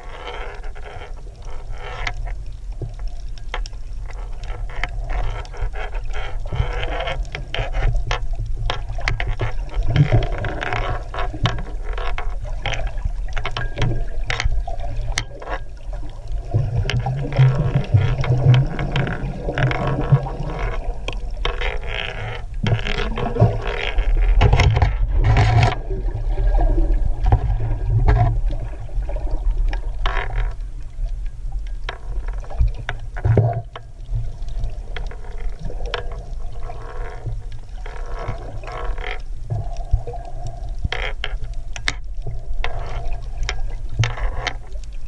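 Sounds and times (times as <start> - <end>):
muffled underwater water movement: 0.0 - 45.0
clicks and knocks of handling: 2.0 - 15.8, 21.1 - 25.8.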